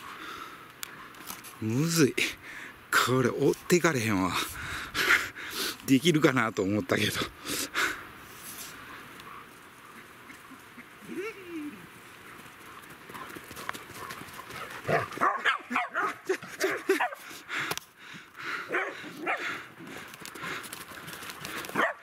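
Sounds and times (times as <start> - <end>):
dogs barking: 14.0 - 17.3, 18.6 - 19.6, 21.7 - 22.0.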